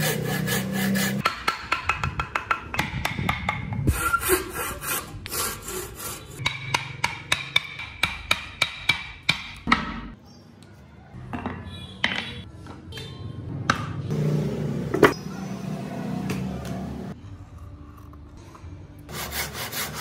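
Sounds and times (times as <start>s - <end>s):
blade scraping wood: 0.0s - 1.2s.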